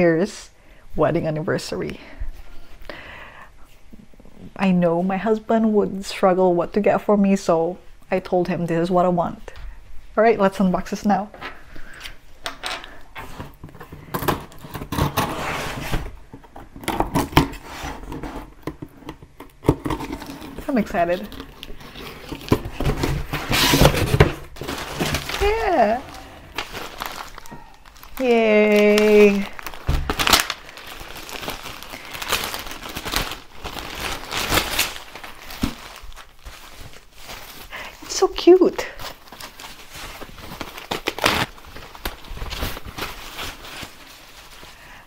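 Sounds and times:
packing tape being slit: 14.2 - 16.1, 16.8 - 28.2, 28.8 - 37.0, 39.2 - 44.0
plastic bag crinkling: 19.2 - 45.0
cardboard knocks and rustling: 22.2 - 25.4.

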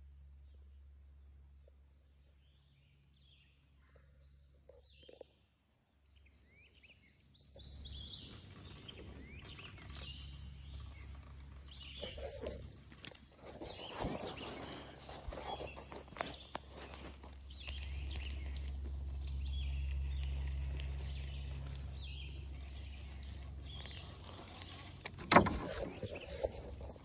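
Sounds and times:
birds chirping: 3.0 - 27.0
phone rustling against sleeve: 12.0 - 18.8.

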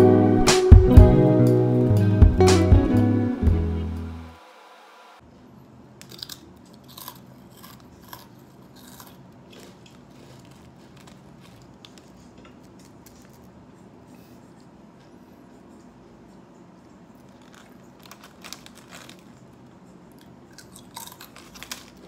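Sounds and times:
person crunching rice cracker: 6.0 - 14.0, 17.1 - 22.0.

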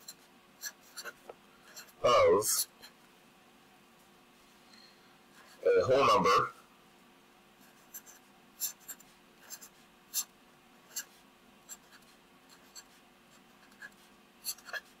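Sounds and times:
marker scratching on paper: 0.0 - 2.0, 7.6 - 10.3, 10.9 - 15.0
faint steady hum: 0.0 - 15.0.

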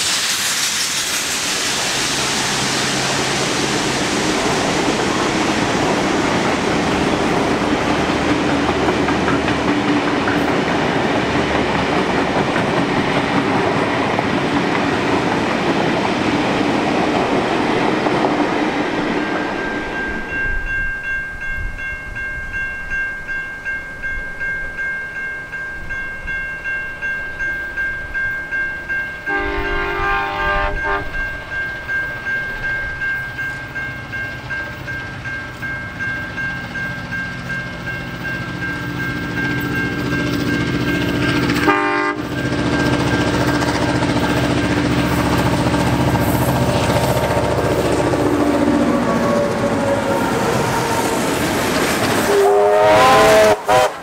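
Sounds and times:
low rumble of approaching train: 0.0 - 54.0
train carriages rolling past: 0.0 - 54.0
steady high-pitched tones: 18.7 - 52.6
distant train horn: 29.2 - 31.5, 41.6 - 42.5, 52.2 - 54.0.

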